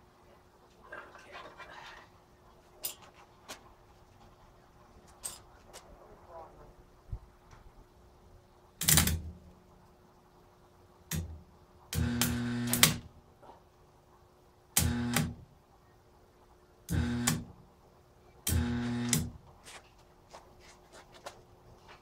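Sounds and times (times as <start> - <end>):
arc welder buzzing and crackling: 8.8 - 9.4, 11.1 - 13.1, 14.8 - 15.5, 16.9 - 17.6, 18.4 - 19.5.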